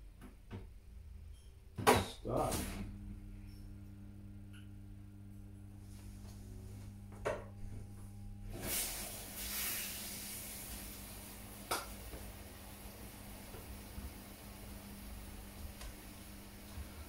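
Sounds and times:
low hum: 2.4s - 9.5s
water hissing through inlet valve: 8.4s - 17.0s.

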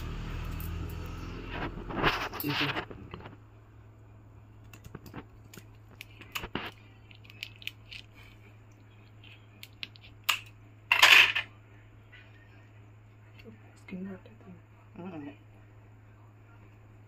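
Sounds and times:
scissors crunching through shell: 4.7s - 8.2s.

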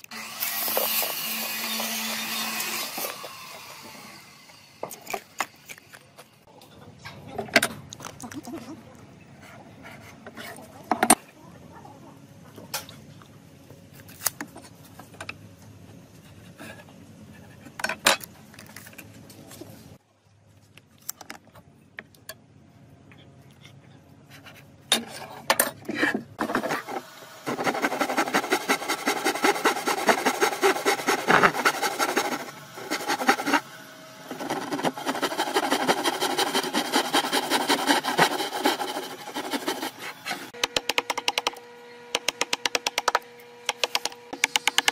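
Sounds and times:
hand saw cutting wood: 0.0s - 4.2s, 26.4s - 40.6s.

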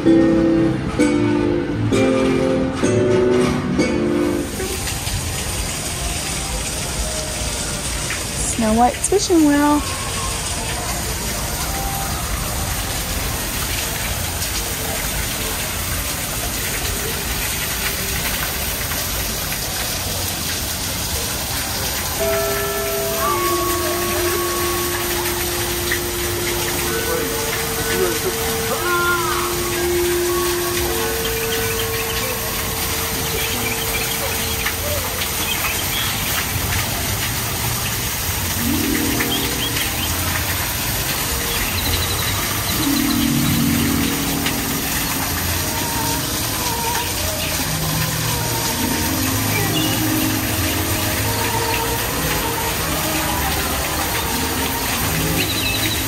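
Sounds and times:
waterfall splashing into pool: 0.0s - 56.0s
lower pitched notes: 22.2s - 35.4s, 38.3s - 52.9s.

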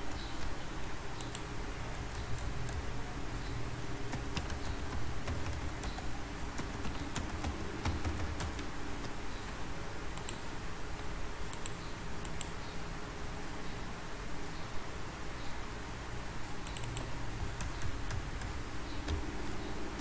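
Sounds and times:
low background hum: 0.0s - 20.0s
keyboard key clicks: 4.1s - 9.2s, 16.6s - 20.0s.

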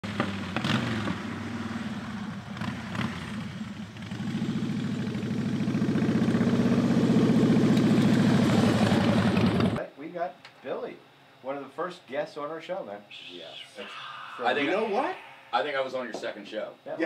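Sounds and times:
motorcycle engine running: 0.0s - 9.8s.

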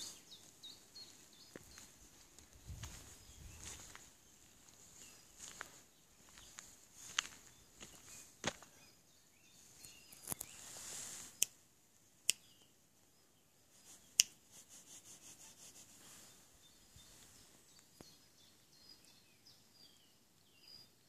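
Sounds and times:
footsteps on gravel: 0.4s - 8.8s.

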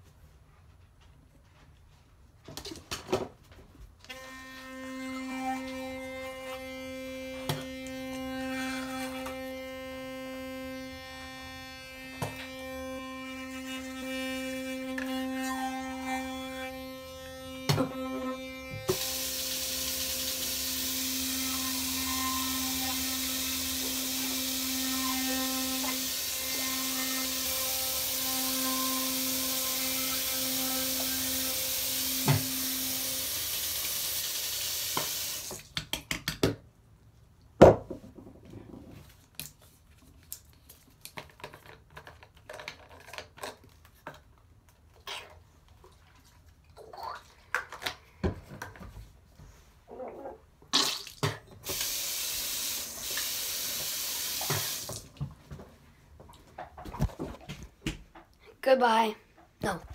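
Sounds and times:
electric toothbrush buzzing: 4.1s - 35.5s, 51.7s - 55.0s.

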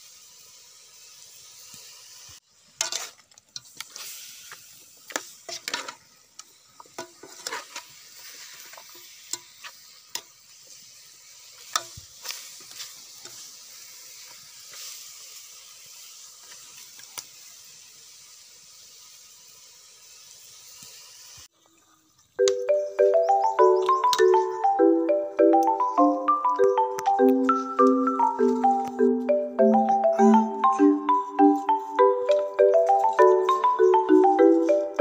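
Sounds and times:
meat sizzling: 0.0s - 21.6s, 22.4s - 35.0s.

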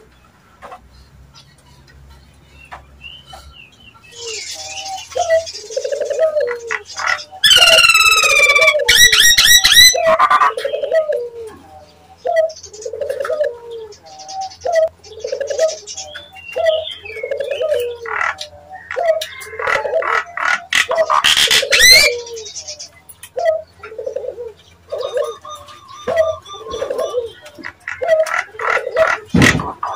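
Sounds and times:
higher bird chirps: 2.6s - 11.0s, 20.8s - 29.1s
myna whistles and warbles: 21.5s - 22.3s.

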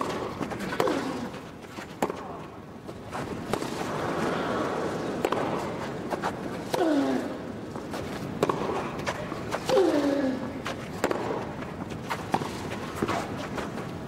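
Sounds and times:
racket striking tennis ball: 0.0s - 2.4s, 3.1s - 3.9s, 5.2s - 7.1s, 7.9s - 13.6s
crowd noise: 0.1s - 11.5s
player grunting: 6.7s - 7.5s, 9.6s - 10.6s.

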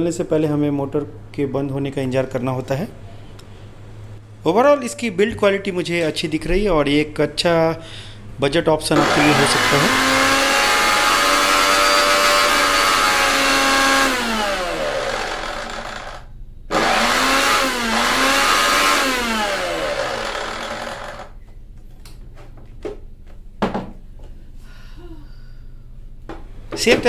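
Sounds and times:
mixer grinder whining: 9.0s - 21.4s.

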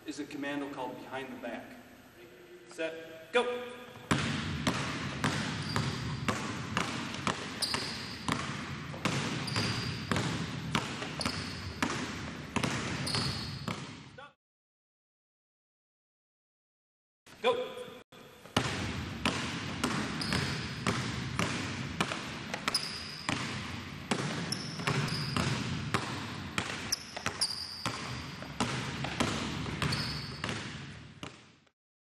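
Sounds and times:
basketballs bouncing on wooden floor: 3.9s - 14.2s, 18.5s - 31.6s
shoe squeaks: 5.5s - 6.3s, 7.4s - 8.4s, 9.3s - 10.2s, 11.0s - 11.8s, 13.0s - 13.8s, 20.2s - 20.9s, 22.6s - 23.4s, 24.4s - 25.5s, 26.8s - 28.5s, 29.8s - 30.6s.

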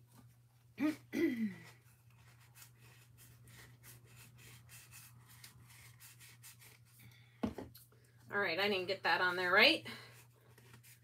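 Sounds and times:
hands rubbing and scratching materials: 10.2s - 11.0s.

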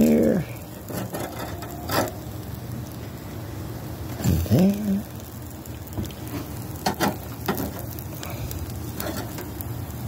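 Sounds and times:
patties sizzling on a grill: 0.0s - 10.0s
metal spatula clinking on grate: 0.9s - 2.2s, 9.0s - 9.5s.

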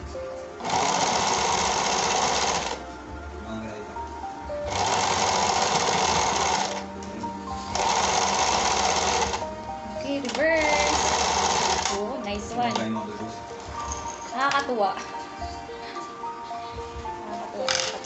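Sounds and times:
sewing machine stitching: 0.6s - 2.8s, 4.7s - 6.8s, 7.7s - 9.4s, 10.3s - 12.0s.

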